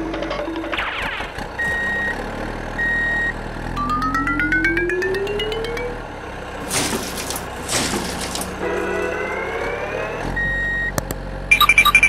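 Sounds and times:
rising mechanical whine with ticks: 0:02.8 - 0:06.3, 0:08.7 - 0:11.3
steady high beep: 0:11.5 - 0:12.0.

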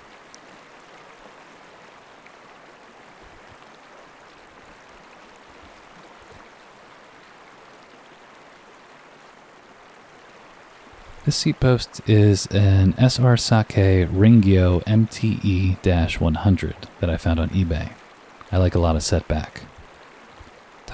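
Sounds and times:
water rushing over rocks: 0:00.0 - 0:20.9.

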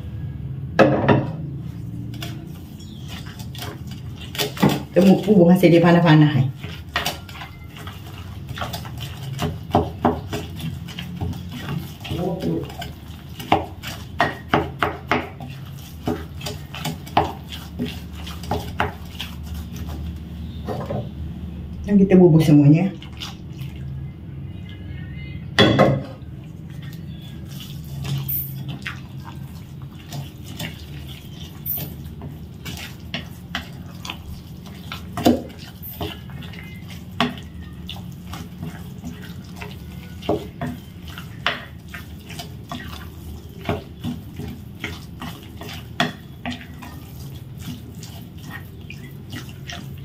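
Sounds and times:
paddle stirring wet mix in bowl: 0:01.2 - 0:25.2, 0:26.1 - 0:50.0.

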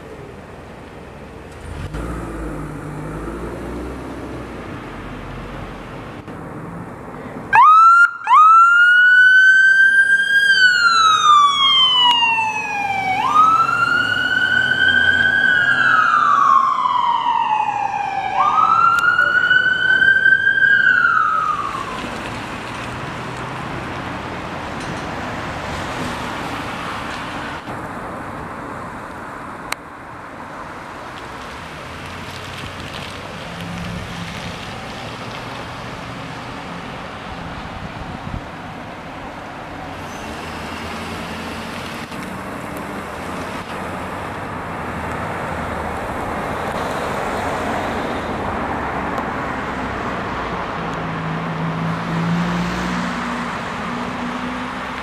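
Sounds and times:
city traffic noise: 0:00.0 - 0:55.0
siren chirp: 0:07.5 - 0:22.1
electronic siren wailing: 0:07.6 - 0:22.1.

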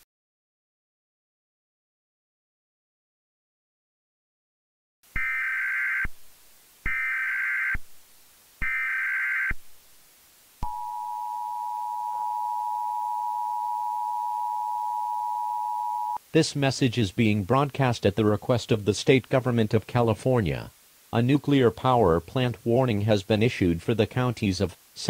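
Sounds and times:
buzzy digital data tones: 0:10.6 - 0:16.2
two-tone attention signal: 0:10.6 - 0:16.2.

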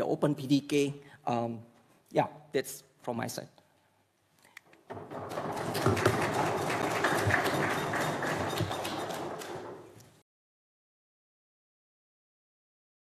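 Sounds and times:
audience applauding: 0:05.0 - 0:09.9.

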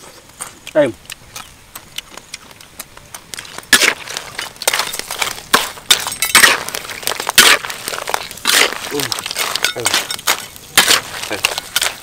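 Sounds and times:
crab shells clattering: 0:03.2 - 0:12.0
spatula scraping a wok: 0:03.7 - 0:12.0.

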